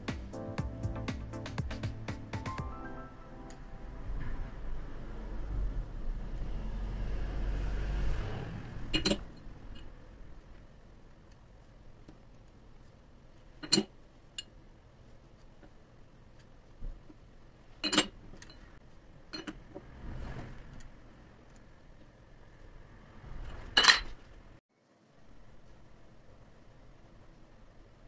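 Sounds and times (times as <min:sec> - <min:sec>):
soft handling rustle: 0:10.4 - 0:17.3.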